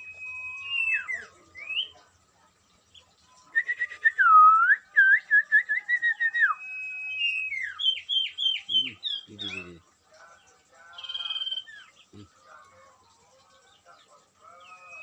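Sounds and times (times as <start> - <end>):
songbird whistling: 0.0 - 2.0, 3.5 - 9.7, 11.0 - 12.0, 14.6 - 15.0.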